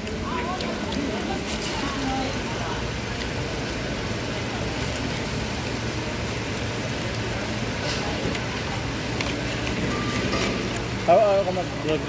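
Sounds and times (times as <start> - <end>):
continuous rush with low hum: 0.0 - 12.0
faint voices: 0.0 - 12.0.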